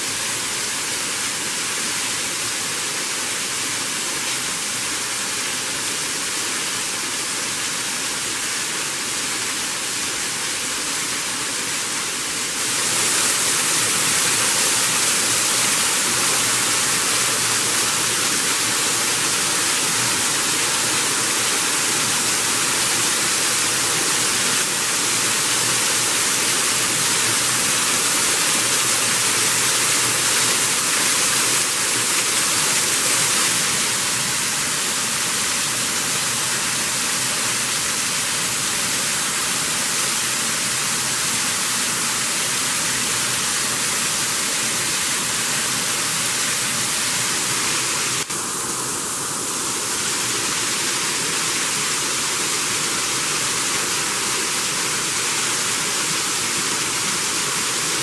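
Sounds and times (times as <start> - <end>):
waterfall splashing onto rocks: 0.1 - 58.0.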